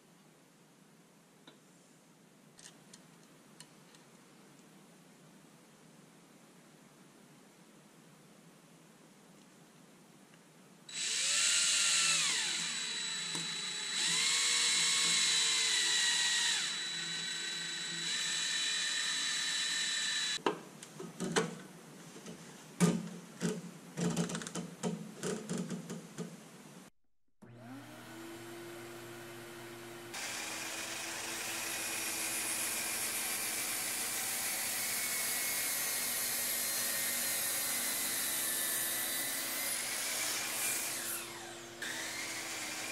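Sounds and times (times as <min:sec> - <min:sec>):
miter saw whine: 0:10.9 - 0:20.4, 0:27.5 - 0:37.8, 0:39.7 - 0:42.9
power drill boring into wood: 0:10.9 - 0:20.4, 0:30.1 - 0:42.9.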